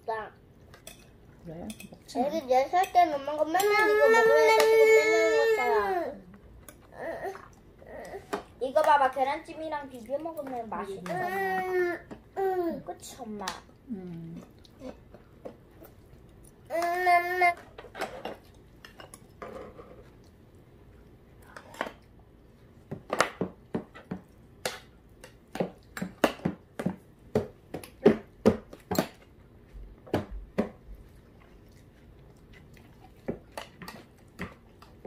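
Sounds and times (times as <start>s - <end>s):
spoons clinking against metal bowls: 0.8s - 1.1s, 1.7s - 2.0s.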